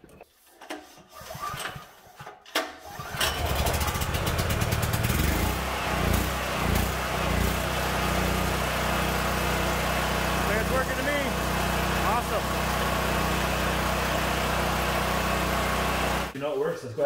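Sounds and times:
generator engine running: 0:03.0 - 0:16.4.

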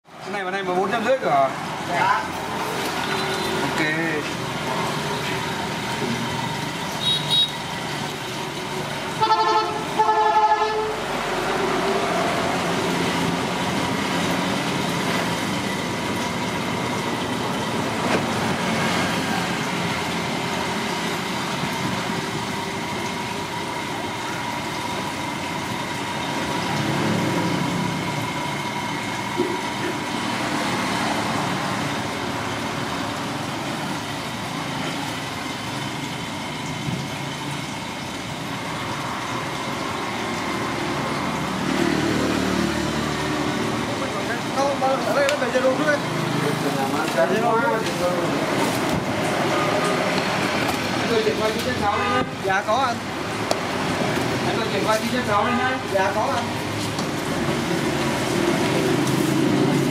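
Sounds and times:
street traffic: 0:00.0 - 0:59.9
car horn toots: 0:07.0 - 0:07.6, 0:09.2 - 0:11.1, 0:51.9 - 0:52.4.

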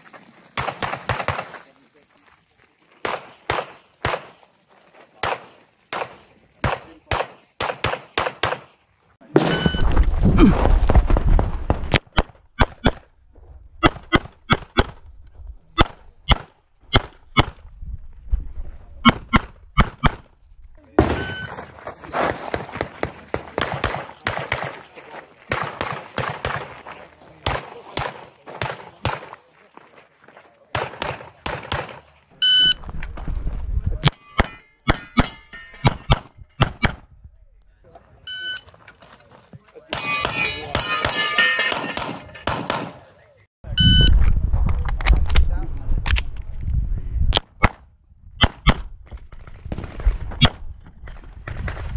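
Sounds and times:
pistol shots in quick pairs: 0:00.6 - 0:01.6, 0:03.0 - 0:04.4, 0:05.2 - 0:08.7, 0:22.5 - 0:26.8, 0:27.4 - 0:29.4, 0:30.7 - 0:32.1, 0:39.9 - 0:43.1.

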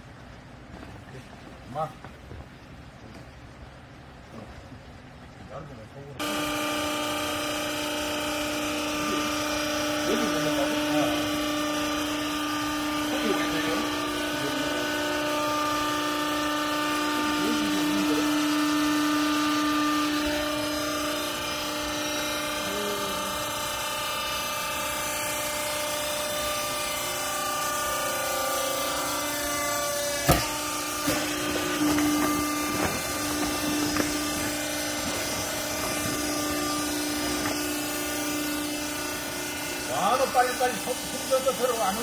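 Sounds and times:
hydraulic power unit humming: 0:00.0 - 0:42.0
sharp knocks: 0:29.5 - 0:37.8.

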